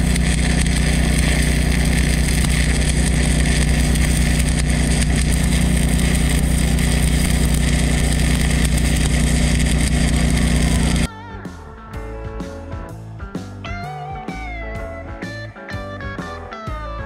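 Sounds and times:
engine-like drone: 0.0 - 11.1
welding arc crackling: 0.0 - 11.1
guitar music: 9.8 - 17.0.

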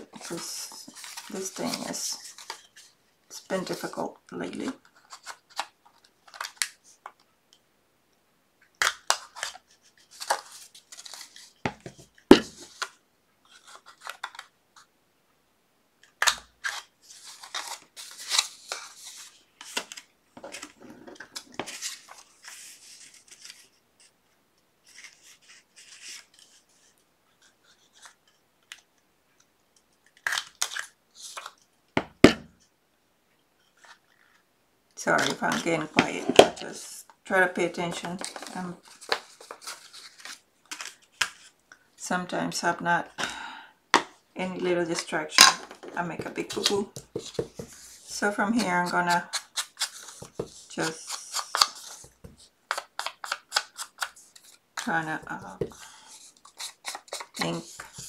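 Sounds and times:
paper rustling and scraping: 0.1 - 3.0, 16.6 - 24.1, 24.8 - 28.3, 37.9 - 41.6, 45.7 - 52.5.

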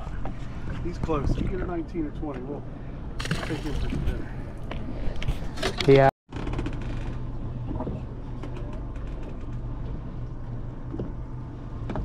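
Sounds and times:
water: 0.0 - 12.0.

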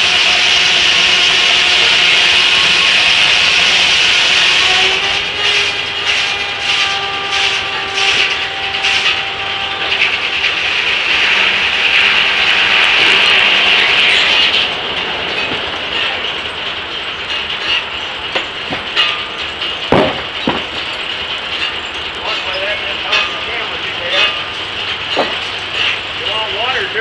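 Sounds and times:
circular saw cutting log: 0.0 - 14.9
sharp knocks: 17.3 - 21.0, 24.2 - 26.0.

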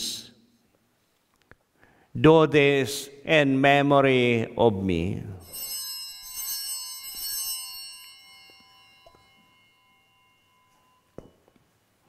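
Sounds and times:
altar bells ringing: 5.4 - 12.0.

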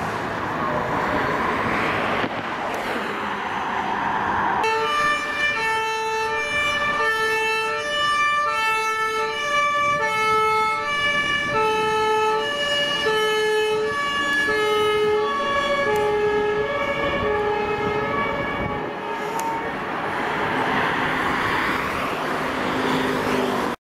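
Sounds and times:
road traffic noise: 0.0 - 23.8
two-tone siren: 4.6 - 19.9.

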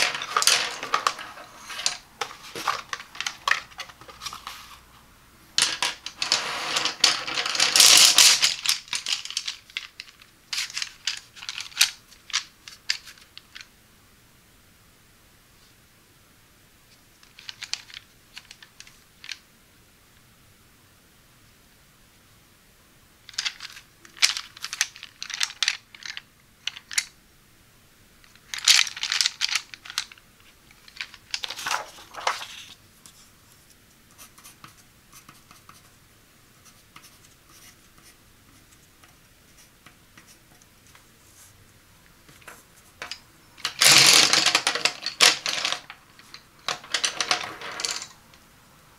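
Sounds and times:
wooden pencils clacking: 0.0 - 4.6, 5.6 - 13.7, 17.2 - 19.4, 23.3 - 27.1, 28.3 - 32.8, 42.3 - 48.4
pencils clattering on paper: 0.0 - 4.8, 5.6 - 13.7, 17.2 - 19.4, 23.3 - 27.1, 28.3 - 32.8, 42.3 - 48.2.

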